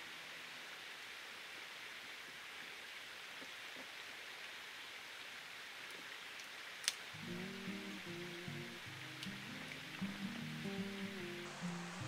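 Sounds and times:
water rushing: 0.0 - 12.0.

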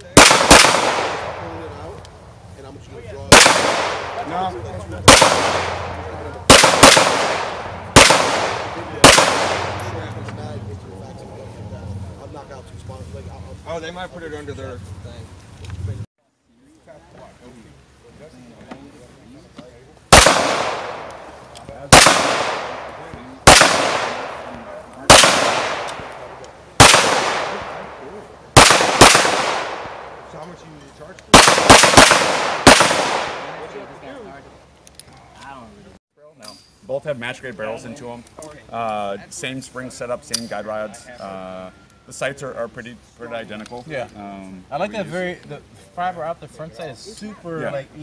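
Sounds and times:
handgun shots with echo: 0.2 - 1.4, 3.3 - 4.2, 5.1 - 5.9, 6.5 - 10.0, 23.5 - 24.4, 25.1 - 26.2, 26.8 - 27.8, 28.6 - 30.1, 31.4 - 33.6.

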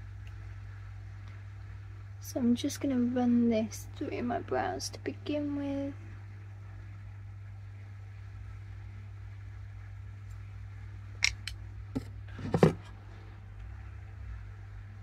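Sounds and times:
steady low hum: 0.0 - 15.0
clicks and knocks of items set down: 11.2 - 12.9.

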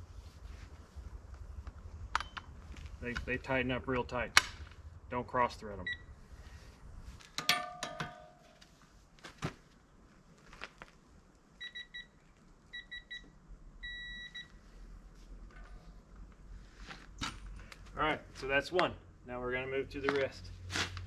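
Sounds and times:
metallic clank: 7.4 - 8.6
long beep: 13.8 - 14.5.

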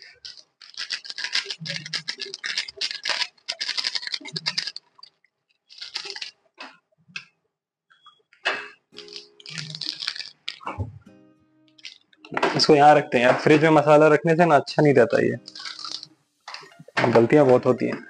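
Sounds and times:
plastic sachet crinkling and tearing: 0.0 - 6.4, 9.0 - 10.8, 11.8 - 13.8, 15.4 - 17.7.

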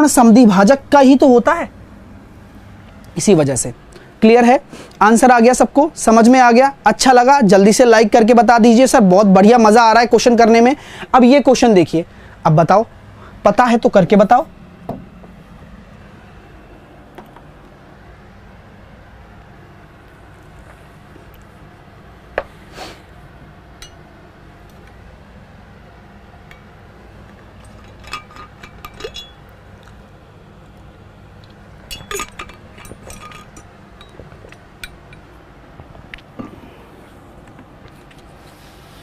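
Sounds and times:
light clicks and clinks: 27.6 - 29.5, 31.9 - 35.3.

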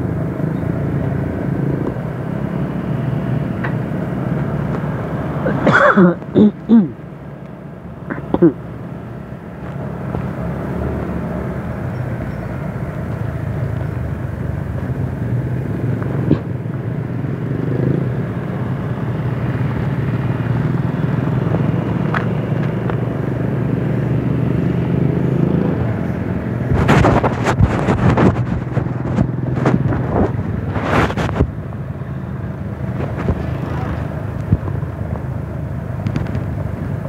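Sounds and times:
wind and road noise: 0.0 - 37.0
small motorcycle engines running: 7.6 - 37.0.

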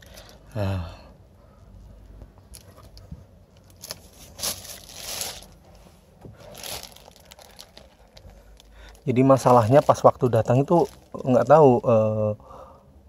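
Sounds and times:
plastic wrapping crinkling: 3.6 - 5.7, 6.3 - 11.9.

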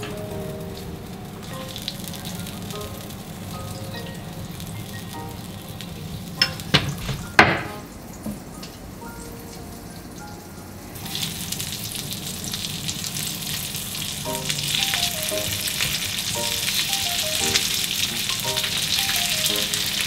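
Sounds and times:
butter sizzling in a frying pan: 0.0 - 6.8, 11.0 - 20.0.

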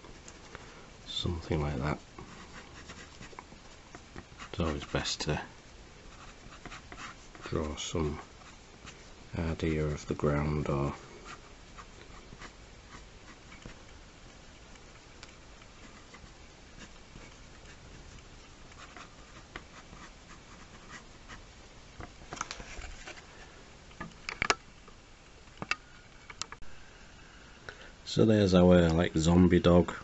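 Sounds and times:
pen scratching on paper: 2.2 - 5.3, 6.1 - 9.0, 11.2 - 21.4.

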